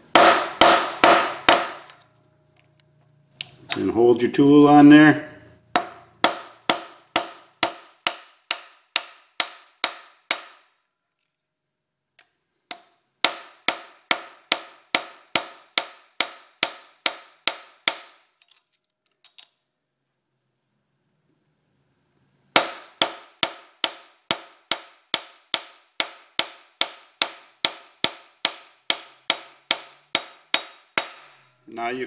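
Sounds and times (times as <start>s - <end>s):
hammer striking metal tool: 0.1s - 2.0s, 5.7s - 10.7s, 12.7s - 18.3s, 22.6s - 31.5s.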